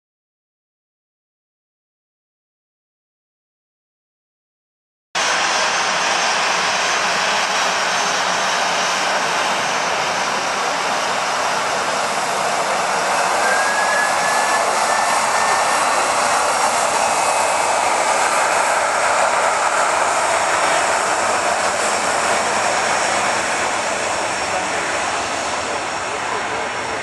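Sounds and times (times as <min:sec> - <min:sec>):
jet engines rushing: 0:05.2 - 0:27.0
faint rising whistle: 0:13.0 - 0:18.5.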